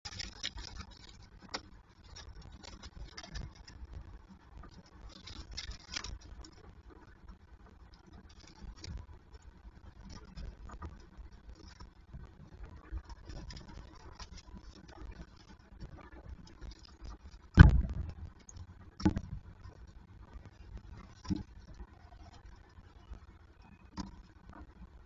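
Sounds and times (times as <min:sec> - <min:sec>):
birds pattering and scratching: 0:00.0 - 0:25.0
low rumble: 0:05.8 - 0:23.5.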